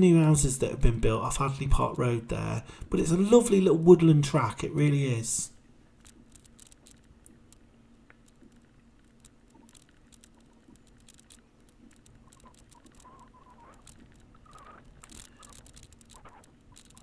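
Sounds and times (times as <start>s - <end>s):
small clicks and crackles: 5.6s - 17.0s.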